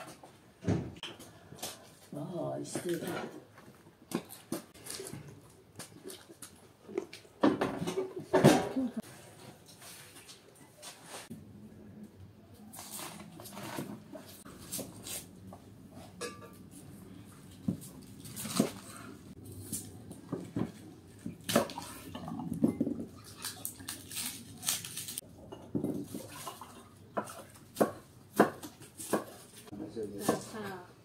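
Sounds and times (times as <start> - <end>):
glassware and dishes clinking: 16.0 - 16.6, 25.4 - 27.4
knife cutting cabbage on board: 27.3 - 29.6.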